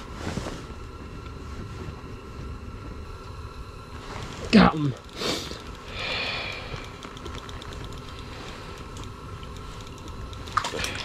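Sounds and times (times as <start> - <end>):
steady hiss: 0.0 - 11.0
fishing reel whirring: 4.4 - 11.0.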